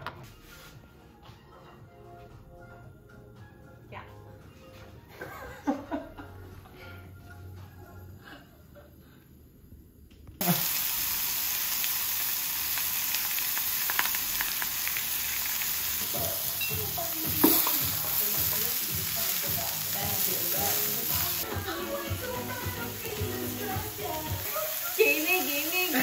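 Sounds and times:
steaks sizzling in grill pan: 0:10.4 - 0:26.0.

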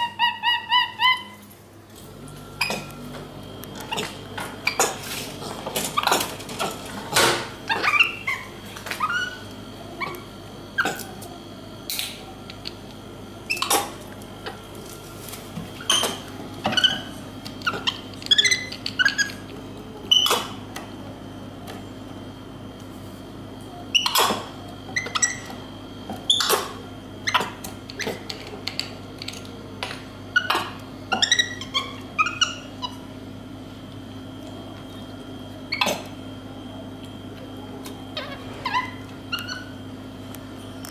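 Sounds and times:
steady hum: 0:00.0 - 0:40.9
monkey squeaky chirps: 0:16.7 - 0:19.4.

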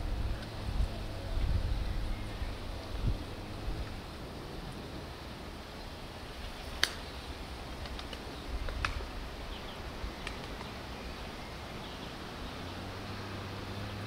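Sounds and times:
sharp clicks: 0:06.8 - 0:07.1.

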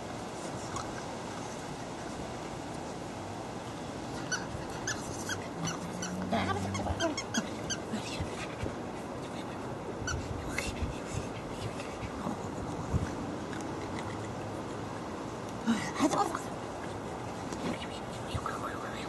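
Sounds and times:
puppies whimpering: 0:04.2 - 0:07.9.

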